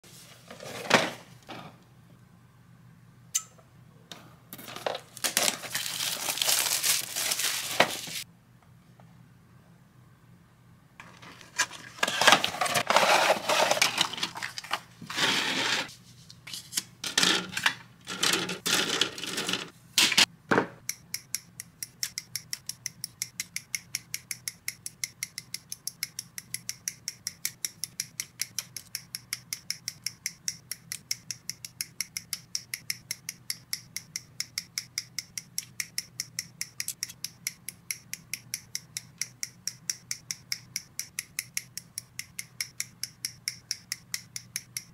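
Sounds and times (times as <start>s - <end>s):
plastic parts rustling and clattering: 0.4s - 1.3s, 4.6s - 8.2s, 11.0s - 15.9s, 16.5s - 20.3s
sharp evenly spaced clicks: 20.8s - 44.9s.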